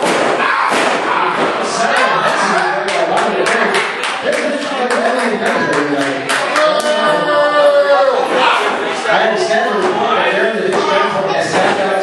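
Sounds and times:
crowd clapping rapidly: 1.9 - 7.0
voices shouting: 6.5 - 8.8.

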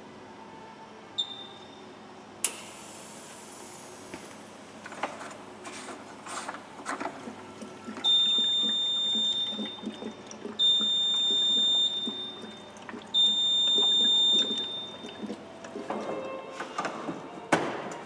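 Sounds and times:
coolant gurgling from a jug: 6.6 - 16.4.

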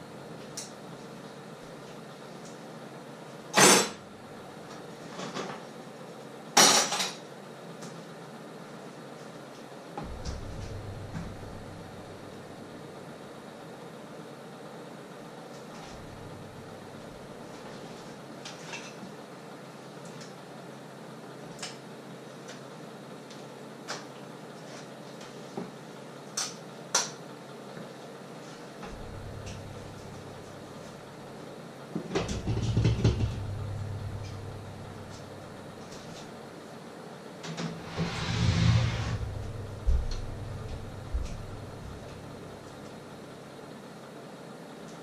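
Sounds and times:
steady low hiss: 10.0 - 13.2, 15.8 - 18.0, 28.8 - 31.4, 32.2 - 36.3, 37.6 - 43.4.

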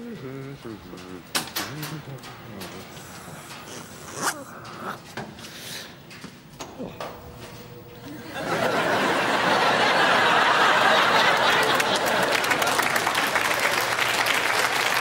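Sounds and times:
audience laughter: 8.0 - 13.9
audience clapping: 8.8 - 15.0.

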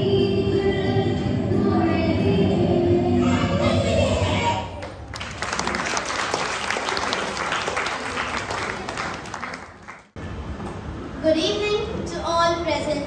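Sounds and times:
audience applauding: 4.8 - 10.2.

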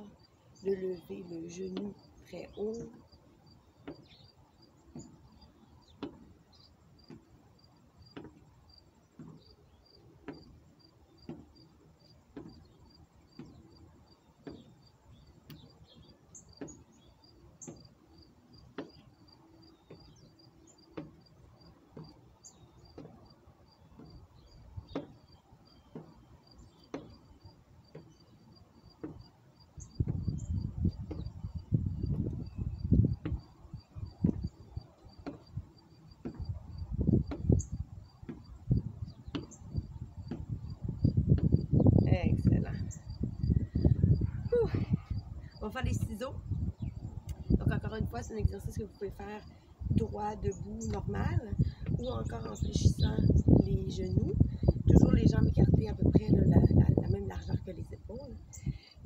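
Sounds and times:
footsteps on wooden deck: 0.6 - 45.1
insect chirping: 2.9 - 42.0, 42.8 - 45.6.

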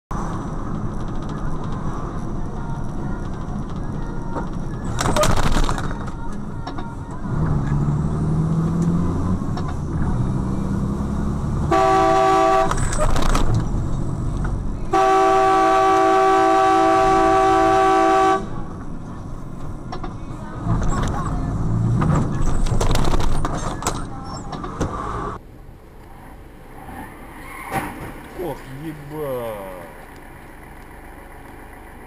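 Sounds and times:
vehicle horn honking: 11.7 - 12.9, 14.9 - 18.6
engine running: 28.0 - 32.0.

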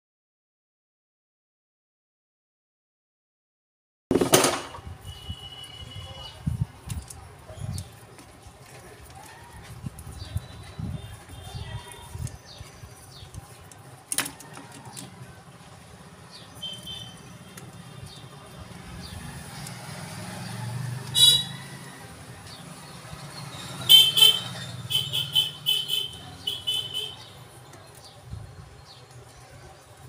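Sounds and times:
road traffic engine hum: 4.7 - 30.0
vehicle horn toots: 4.8 - 6.3, 21.2 - 21.6, 23.9 - 27.2.

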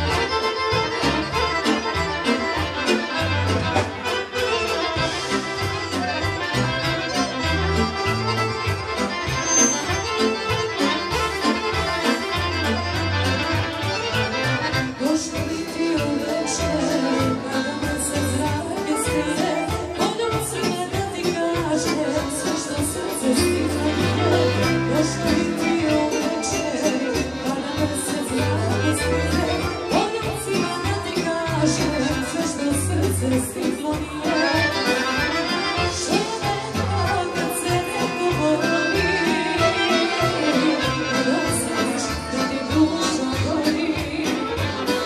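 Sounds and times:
accordions: 0.0 - 45.0
folk band playing: 0.0 - 45.0
violin: 0.0 - 45.0
woman singing into microphone: 14.9 - 45.0.

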